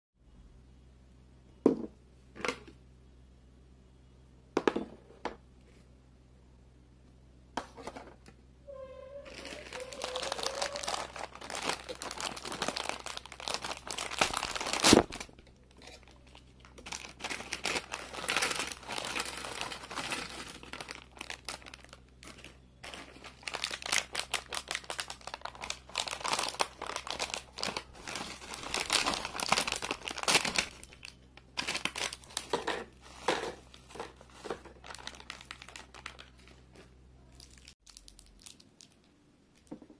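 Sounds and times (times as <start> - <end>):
plastic chip packets crinkling: 9.2 - 39.8
packet tearing snap: 14.0 - 15.2.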